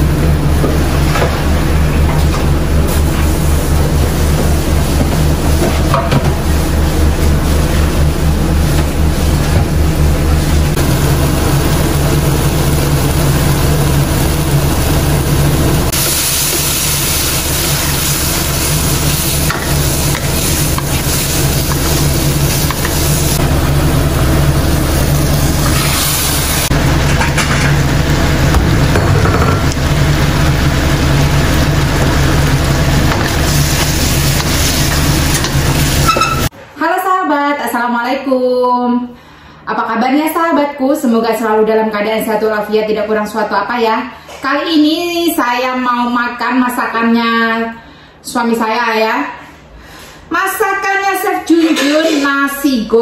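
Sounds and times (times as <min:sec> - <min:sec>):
steady low hum: 0:00.0 - 0:36.6
meat and vegetables sizzling in a wok: 0:02.7 - 0:36.5.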